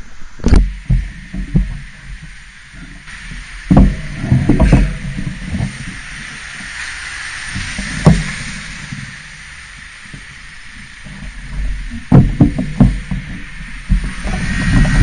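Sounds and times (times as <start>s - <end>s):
street traffic hiss: 0.0s - 15.0s
thumps on microphone: 3.7s - 5.8s, 12.1s - 15.0s.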